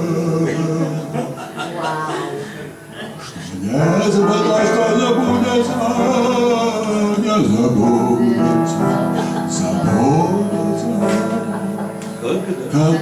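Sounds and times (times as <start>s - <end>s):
instrumental accompaniment: 0.0s - 13.0s
man singing: 0.0s - 13.0s.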